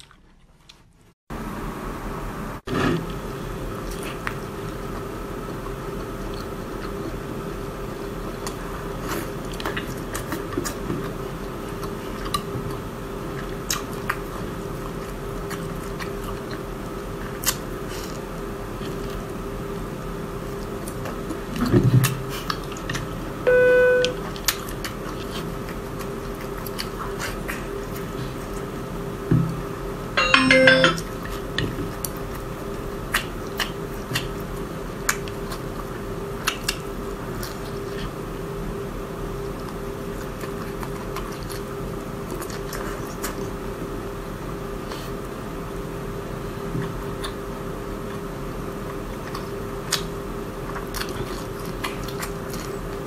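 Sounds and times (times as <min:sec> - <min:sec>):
person chewing: 0:00.0 - 0:01.0, 0:48.9 - 0:53.0
background hum: 0:00.0 - 0:53.0
short electronic beep: 0:23.5 - 0:24.2, 0:30.2 - 0:31.0.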